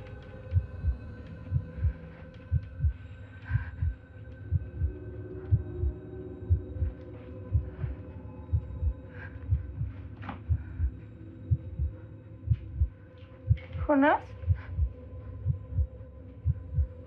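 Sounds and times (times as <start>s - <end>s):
low steady hum: 0.0s - 17.0s
heartbeat double thump: 12.5s - 12.9s.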